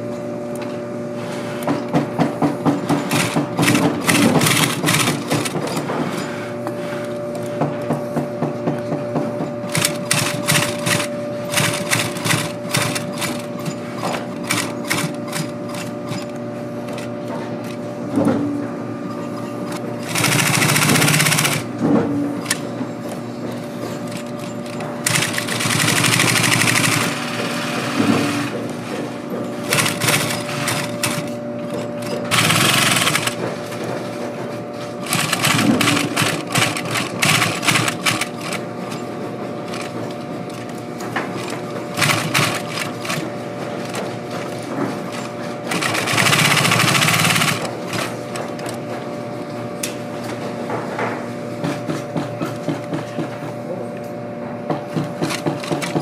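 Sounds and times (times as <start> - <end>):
sewing machine stitching: 3.0 - 5.8, 9.7 - 16.3, 20.0 - 21.7, 24.1 - 28.5, 29.7 - 33.4, 35.0 - 38.7, 41.4 - 44.6, 45.2 - 48.8, 55.1 - 56.0.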